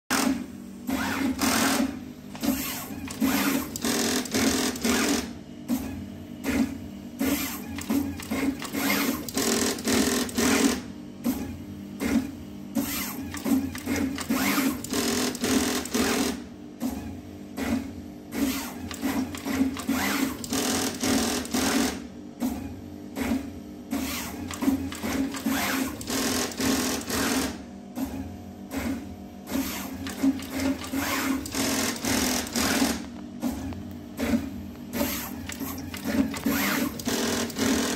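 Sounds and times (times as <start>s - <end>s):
steady machine hum: 0.1s - 37.9s
machine clicks and knocks: 7.7s - 10.8s, 13.2s - 17.9s, 18.8s - 23.5s, 24.4s - 37.9s.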